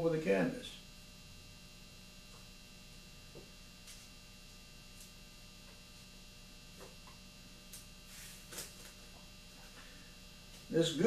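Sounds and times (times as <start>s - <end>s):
faint electrical hum: 0.0s - 11.0s
wooden rod scraping canvas: 8.1s - 8.8s.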